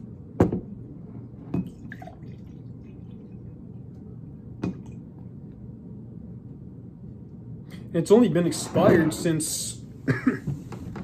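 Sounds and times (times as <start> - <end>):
soda pouring into glass: 1.8 - 3.5.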